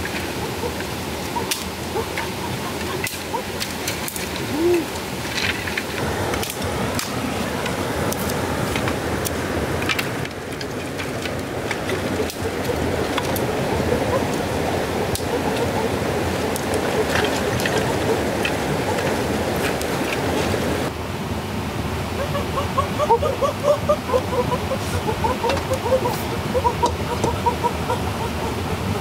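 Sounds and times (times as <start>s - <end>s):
stream rushing: 0.0s - 29.0s
sticks clicking and knocking: 1.4s - 20.7s.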